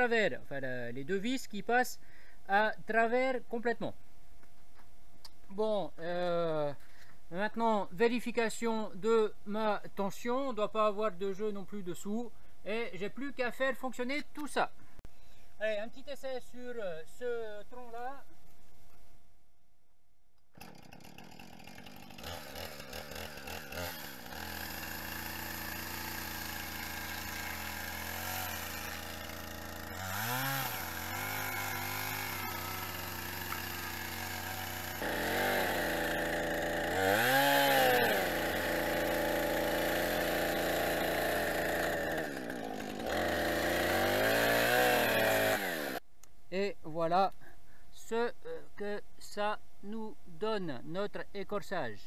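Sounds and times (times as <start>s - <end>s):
chainsaw idling and revving: 20.5s - 46.0s.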